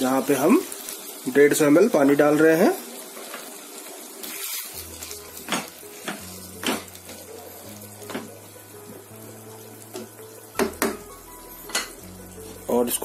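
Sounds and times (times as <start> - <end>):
wooden spatula knocking on pan: 9.9 - 11.1.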